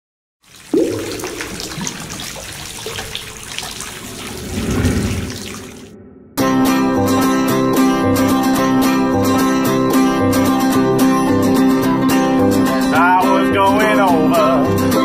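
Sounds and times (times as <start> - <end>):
water sloshing and splashing: 0.4 - 6.0
plucked-string folk music: 6.7 - 15.0.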